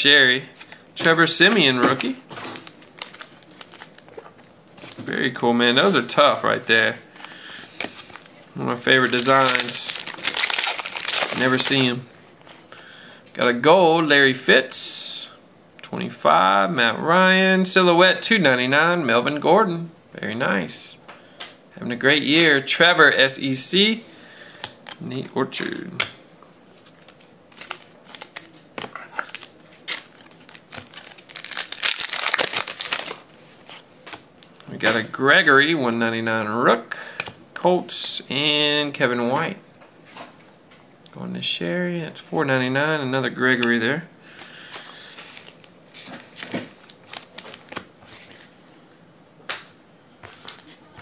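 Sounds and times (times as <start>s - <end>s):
card pack wrapper crinkling: 1.5s - 4.5s, 7.2s - 12.0s, 26.8s - 34.6s, 44.7s - 48.5s, 50.2s - 50.9s
wrapper tearing open: 2.6s - 4.2s, 9.0s - 11.9s, 27.5s - 33.8s, 46.4s - 48.4s.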